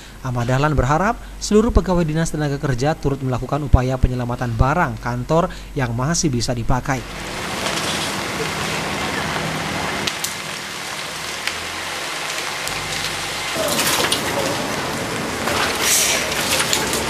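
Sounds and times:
fire crackles: 0.0s - 17.0s
fire rushing hiss: 7.0s - 17.0s.

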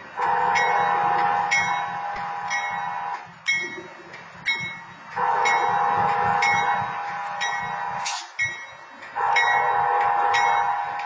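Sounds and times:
locomotive rumble: 0.0s - 11.0s
railroad crossing bell ringing: 0.0s - 11.0s
train horn blasts: 0.2s - 3.2s, 5.2s - 8.3s, 9.2s - 11.0s.

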